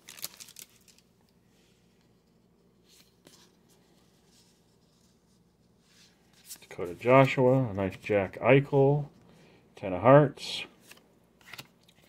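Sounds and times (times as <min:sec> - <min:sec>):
trading cards rustling: 0:00.0 - 0:01.1.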